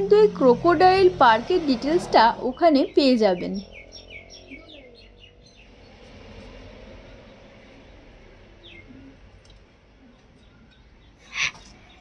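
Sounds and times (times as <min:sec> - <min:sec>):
bird chirps: 0:02.5 - 0:06.0.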